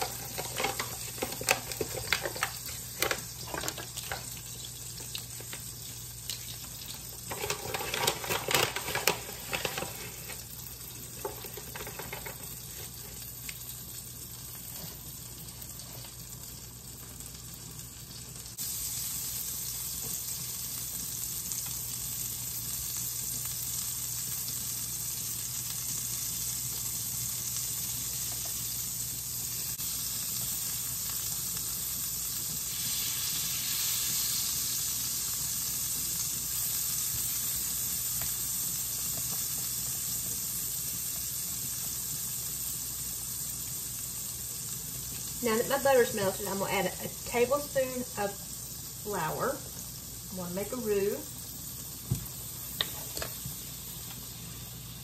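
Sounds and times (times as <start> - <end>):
spatula stirring in pan: 0.0 - 4.4
spattering crackles: 0.0 - 13.6
butter sizzling in frying pan: 0.0 - 55.0.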